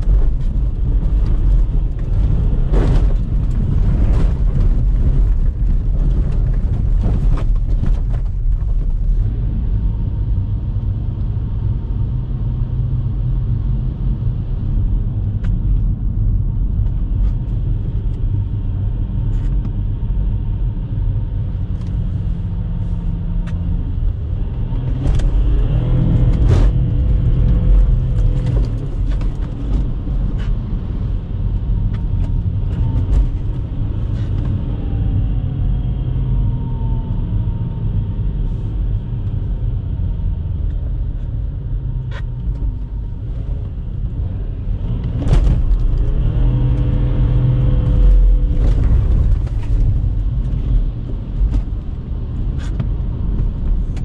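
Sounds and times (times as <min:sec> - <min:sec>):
diesel engine pulling hard: 0:21.1 - 0:54.0.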